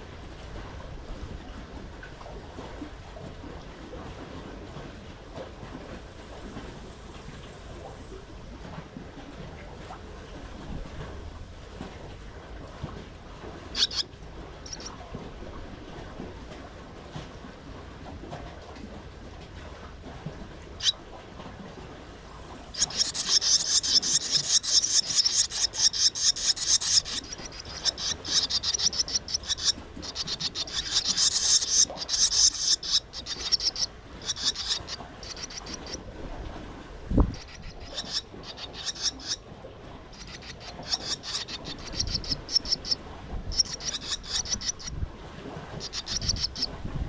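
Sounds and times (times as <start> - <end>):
nestlings begging calls: 13.7 - 15.0, 22.7 - 36.0, 37.3 - 39.4, 40.1 - 44.9, 45.8 - 46.7.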